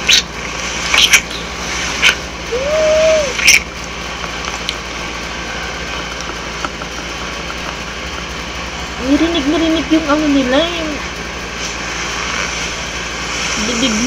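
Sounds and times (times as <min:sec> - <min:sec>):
low electrical hum: 0:00.0 - 0:14.0
person humming: 0:02.5 - 0:03.4.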